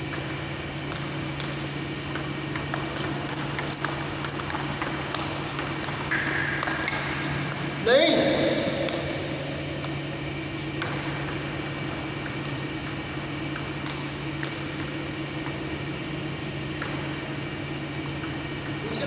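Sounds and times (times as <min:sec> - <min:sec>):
fans humming: 0:00.0 - 0:19.0
table tennis ball clicks: 0:00.1 - 0:07.7.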